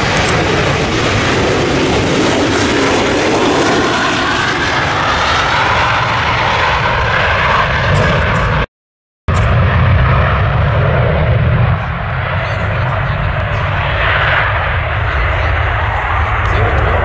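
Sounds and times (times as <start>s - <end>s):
jet airliner taking off: 0.0s - 8.7s, 9.3s - 17.0s.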